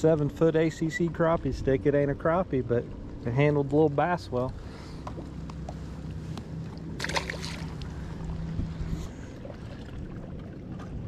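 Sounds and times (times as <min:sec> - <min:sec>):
steady low hum: 0:00.0 - 0:11.0
fishing line swish: 0:07.0 - 0:08.0.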